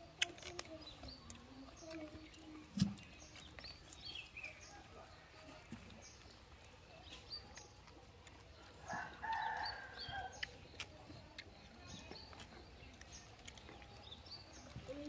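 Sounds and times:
small birds chirping: 0.0 - 15.0
rooster crowing: 8.9 - 10.3.

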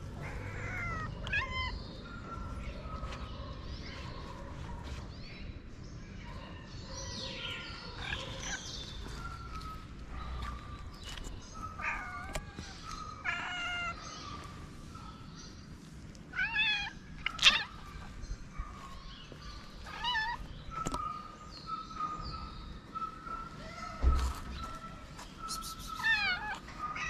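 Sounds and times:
cats meowing: 0.0 - 2.0, 7.9 - 9.0, 11.7 - 14.5, 16.2 - 18.2, 19.7 - 21.0, 25.6 - 27.0.

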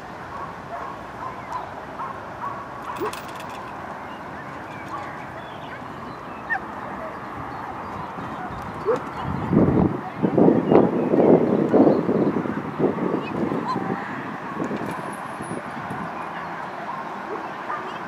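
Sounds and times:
outdoor background noise: 0.0 - 18.0
dogs barking and yelping: 0.3 - 3.6, 4.5 - 9.4, 16.3 - 18.0.

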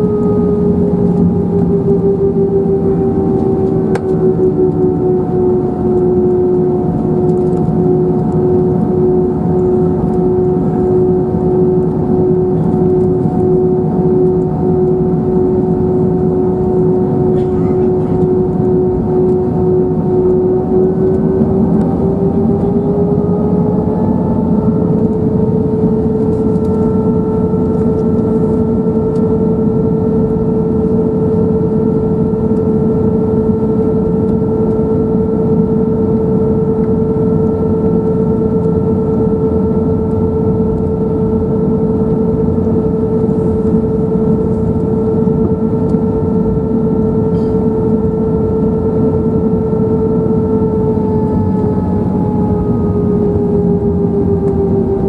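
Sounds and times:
jet engines rumbling with fan whine: 0.0 - 55.0.

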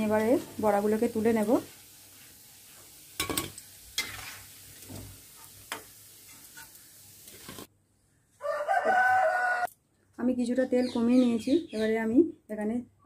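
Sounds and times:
faint oil sizzle: 0.0 - 7.7
metal spoon scraping a metal pan: 3.2 - 7.7.

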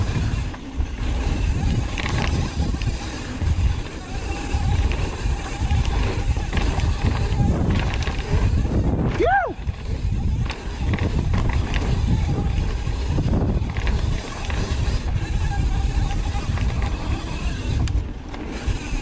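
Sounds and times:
mountain bike rumbling and rattling: 0.0 - 19.0
wind buffeting microphone: 0.0 - 19.0
person whooping: 9.1 - 9.6.

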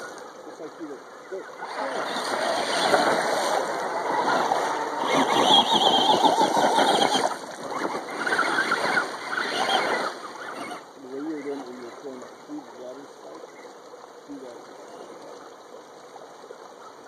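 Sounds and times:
water splashing: 0.0 - 17.0
toy truck motors whining: 1.8 - 10.9.

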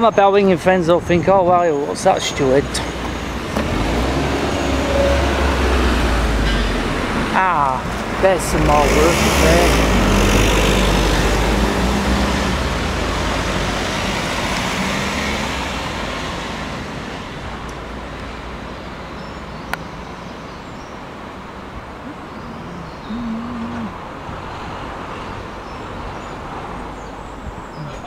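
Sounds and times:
steady traffic noise: 0.0 - 28.0
vehicle passing close by: 2.7 - 7.4, 8.0 - 17.6.

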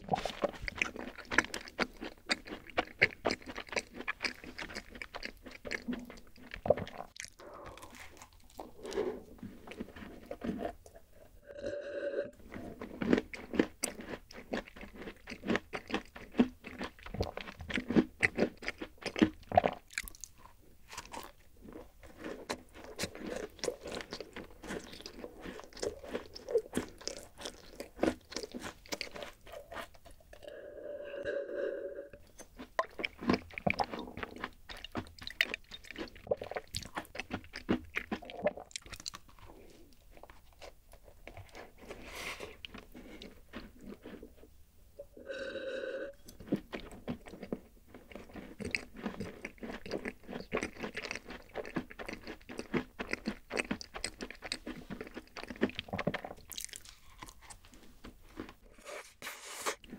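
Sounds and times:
crunching and chewing cookie: 0.0 - 11.2, 12.4 - 30.5, 32.2 - 44.6, 46.2 - 59.9.

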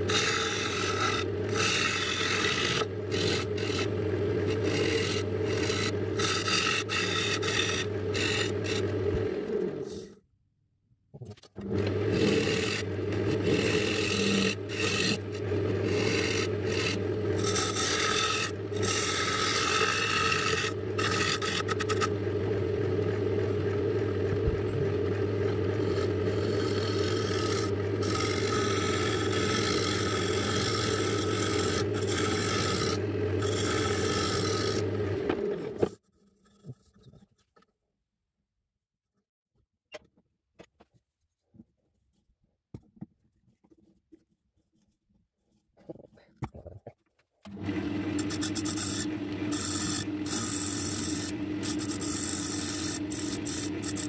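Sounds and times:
lathe motor hum: 0.0 - 10.1, 11.6 - 35.9, 47.5 - 54.0
tool scraping spinning wood: 0.0 - 10.2, 11.6 - 37.5, 47.5 - 54.0.

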